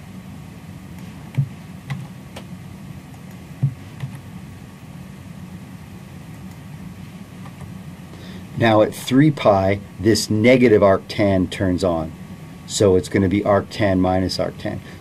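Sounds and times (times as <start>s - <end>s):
low room hum: 0.0s - 15.0s
keyboard and mouse clicks: 3.1s - 4.2s.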